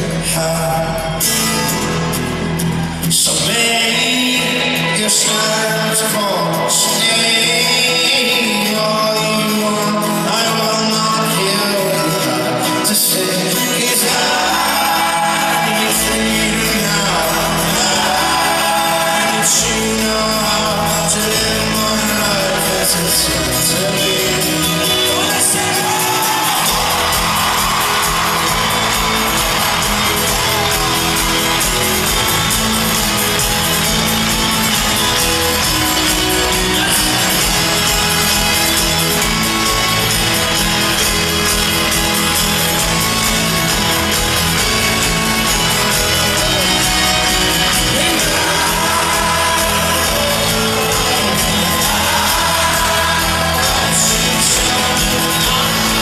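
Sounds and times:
acoustic guitar: 0.0s - 56.0s
banjo: 0.0s - 56.0s
person singing: 3.1s - 56.0s
crowd shouting along: 13.7s - 56.0s
upright bass: 13.7s - 56.0s.

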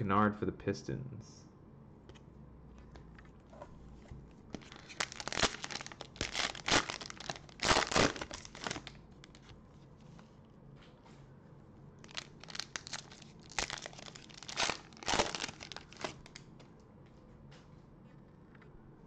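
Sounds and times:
plastic wrapper crinkling: 4.5s - 9.6s, 12.0s - 16.6s.

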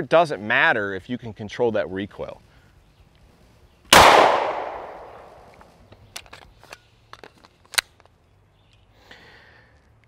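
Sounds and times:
pistol shot echo: 3.9s - 5.5s
pistol handling clicks: 3.9s - 6.5s.

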